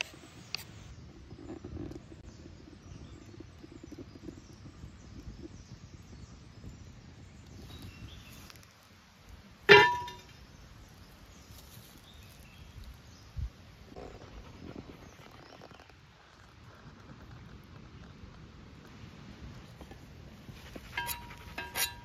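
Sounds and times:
metal pan clanging on stone: 9.7s - 10.3s, 20.9s - 22.0s.

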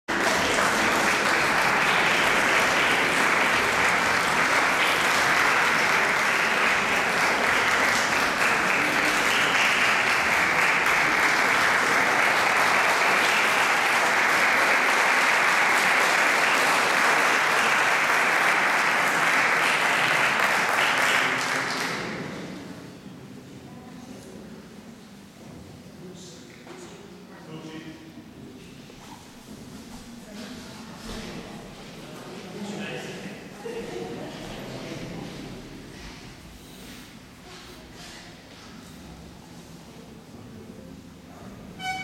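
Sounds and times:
audience applauding: 0.1s - 22.3s.

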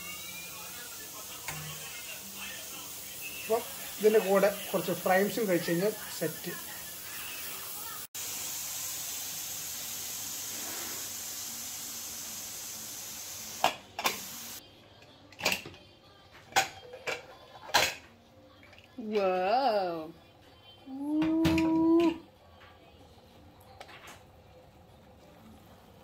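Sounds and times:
steam hissing from pressure cooker: 0.0s - 14.6s.

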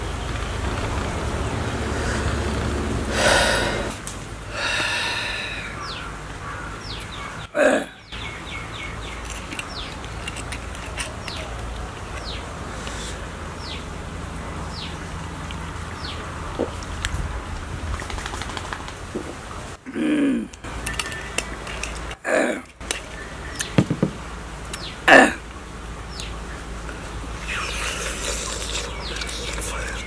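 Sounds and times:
steady low hum: 0.0s - 17.5s
bird chirping with falling chirps: 5.7s - 10.3s, 24.8s - 25.0s, 26.0s - 30.0s.

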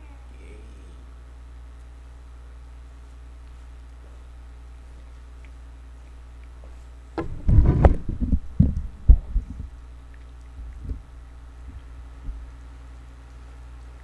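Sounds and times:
low steady hum: 0.0s - 14.0s
rustling close to microphone: 6.6s - 12.8s
dull thumps and knocks: 7.2s - 9.7s.

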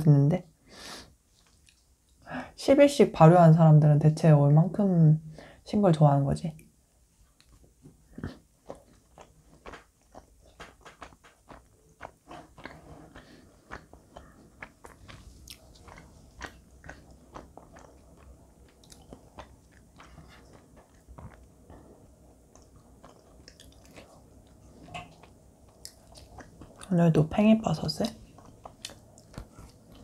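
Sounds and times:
person chewing crunchy food: 7.4s - 26.9s, 28.0s - 30.0s.

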